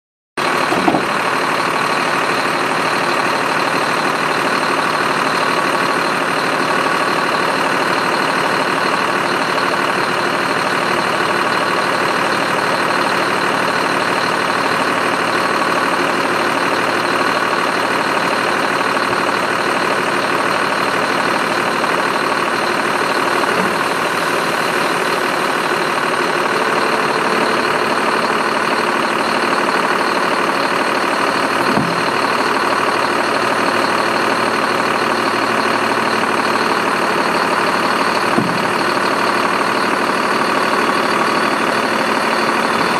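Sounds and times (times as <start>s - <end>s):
diesel truck engine running: 0.4s - 42.9s
hydraulic hoist whine: 20.3s - 42.9s.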